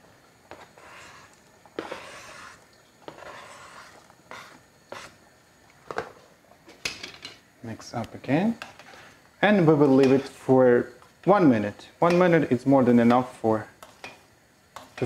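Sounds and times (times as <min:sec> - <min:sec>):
knife scraping cutting board: 0:00.5 - 0:05.2.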